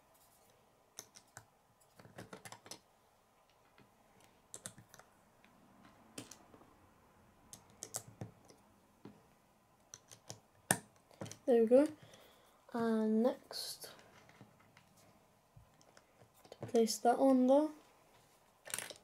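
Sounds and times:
plastic bricks clicking: 1.0 - 2.8, 18.6 - 19.0.

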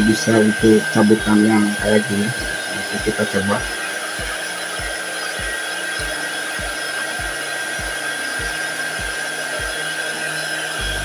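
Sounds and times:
hot air gun fan rushing: 0.0 - 11.0
soft low pulse: 0.0 - 11.0
thin steady whine: 0.0 - 11.0.

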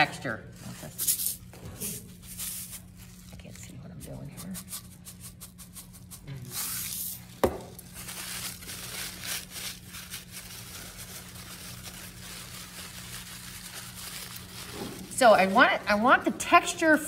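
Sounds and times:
hands scrunching paper towel: 5.6 - 16.0
canister set down on table: 7.4 - 7.7.

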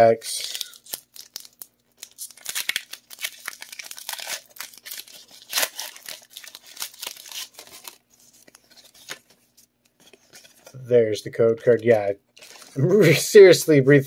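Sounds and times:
foil wrapper tearing and crinkling: 0.3 - 9.3.

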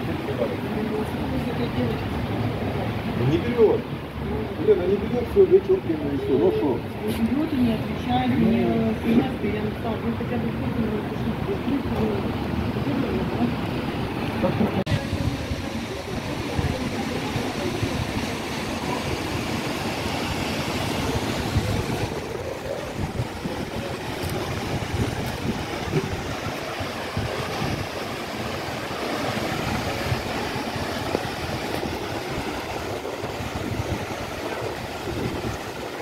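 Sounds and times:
street ambience: 0.0 - 36.0
wind buffeting microphone: 7.3 - 36.0.

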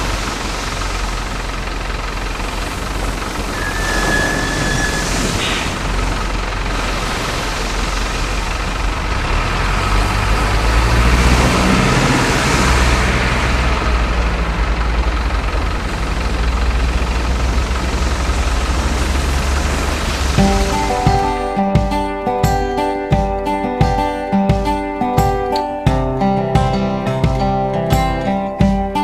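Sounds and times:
constant hiss: 0.0 - 11.2, 11.8 - 23.1
low rumble: 0.0 - 22.2
model truck engine running: 0.0 - 24.2.

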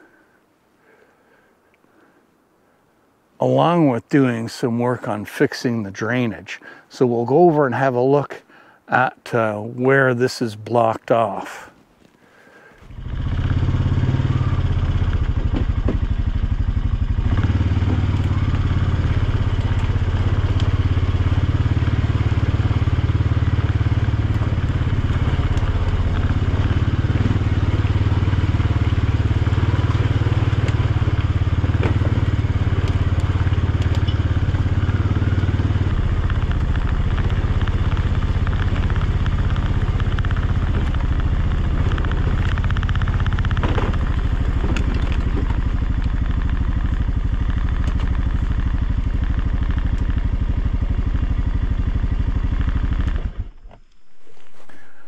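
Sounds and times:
atv engine running: 12.8 - 55.0.

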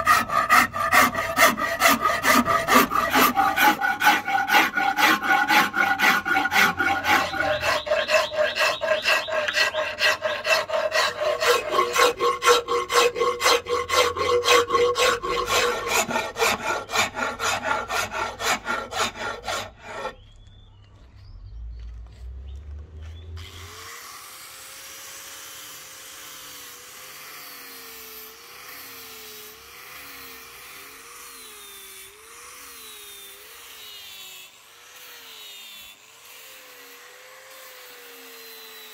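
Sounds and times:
file rasping on wood: 0.0 - 20.2.

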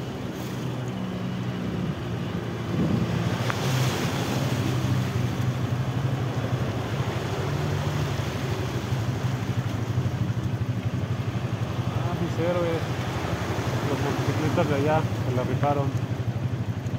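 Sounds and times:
water splashing around tyres: 0.0 - 16.9
motorcycle engine running slowly: 4.7 - 16.9.

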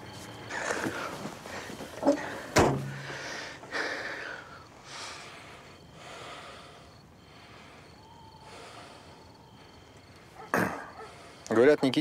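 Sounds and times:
person breathing heavily: 0.5 - 10.1.

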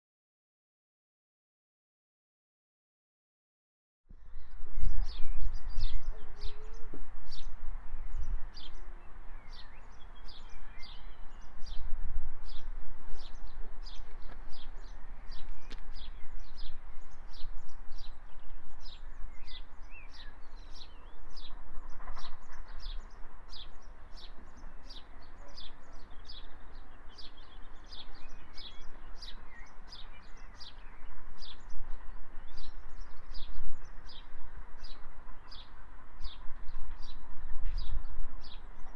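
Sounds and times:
wind rumble on microphone: 4.1 - 38.9
songbird chirping: 12.5 - 38.9.

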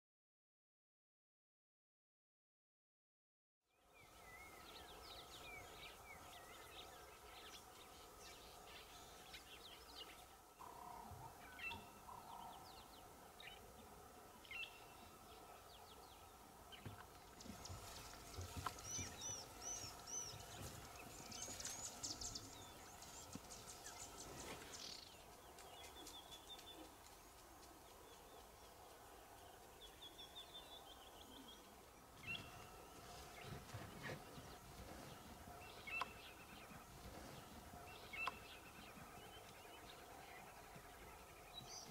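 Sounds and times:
faint steady hum: 3.8 - 41.9
birds chirping and calling: 4.2 - 13.8, 14.4 - 27.0, 27.8 - 41.9
high bird calls and trills: 14.4 - 41.9.

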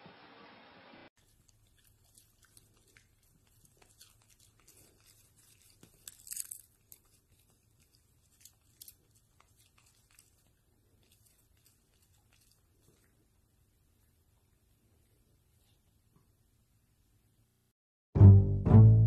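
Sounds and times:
dog chewing popcorn: 1.2 - 13.2.

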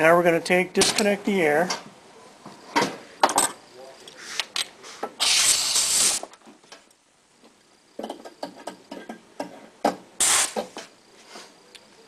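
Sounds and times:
compressed air hiss: 4.2 - 6.3, 10.2 - 11.5
light metal clicks and knocks: 8.0 - 10.0.

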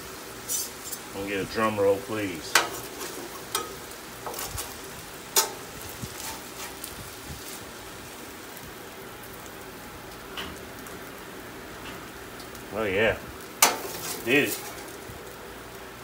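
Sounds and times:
meat and peppers sizzling on griddle: 0.0 - 16.0
metal spatulas scraping griddle: 0.4 - 1.1, 2.5 - 4.8, 5.4 - 6.9, 13.6 - 15.0.

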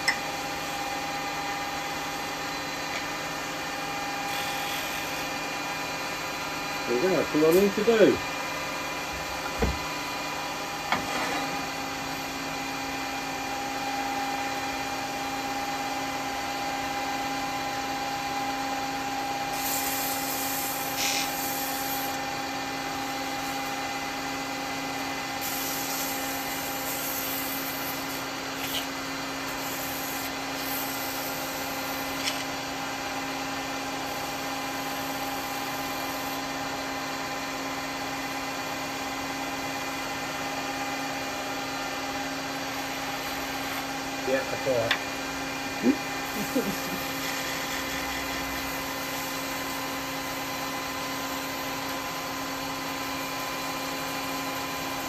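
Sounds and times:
wood lathe motor hum: 44.9 - 55.0.

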